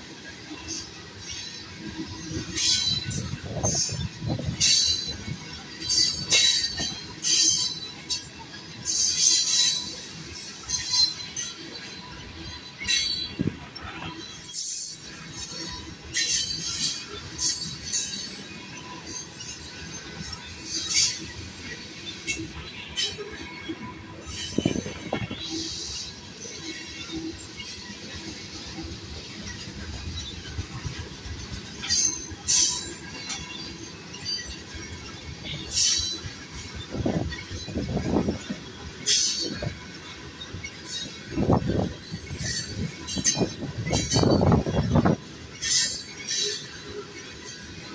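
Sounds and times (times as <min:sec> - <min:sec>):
train wheels rumbling on rail: 0:00.0 - 0:47.9
high-pitched metal wheel screeches: 0:29.2 - 0:47.9.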